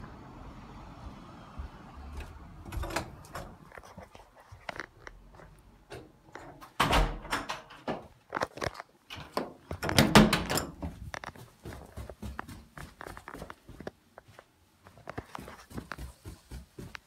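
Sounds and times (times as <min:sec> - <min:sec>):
footsteps thumping on stairs: 0:10.8 - 0:13.8, 0:15.3 - 0:17.0.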